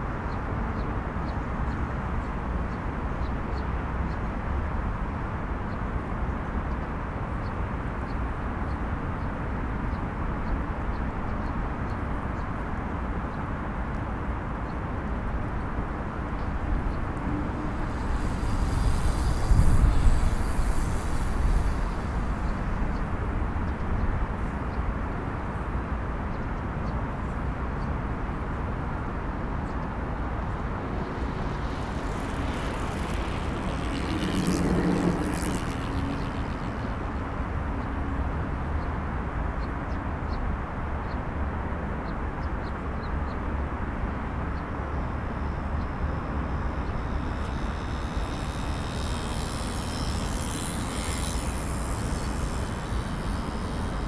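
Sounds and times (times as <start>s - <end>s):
road traffic rumble: 7.0s - 54.0s
high hiss: 17.4s - 23.2s, 46.6s - 54.0s
vehicle passing: 29.8s - 38.1s, 46.2s - 54.0s.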